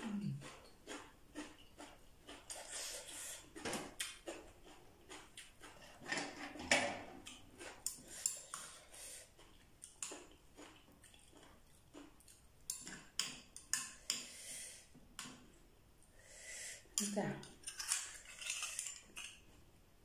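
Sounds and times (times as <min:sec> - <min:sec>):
eating sounds: 0:00.0 - 0:06.4, 0:07.1 - 0:13.5
metal spoon scraping shells: 0:17.0 - 0:19.5.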